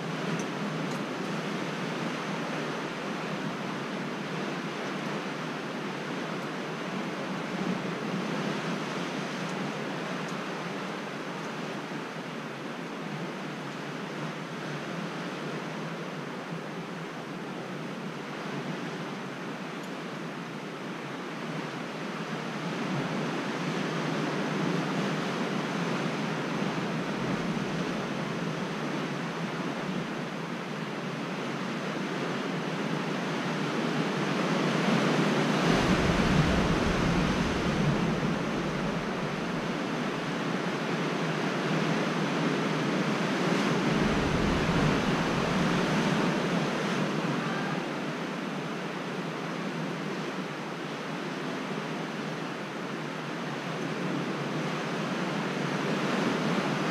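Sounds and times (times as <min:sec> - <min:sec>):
sea surf against cliffs: 0:00.0 - 0:56.9
wind buffeting microphone: 0:34.8 - 0:41.0, 0:43.4 - 0:47.1.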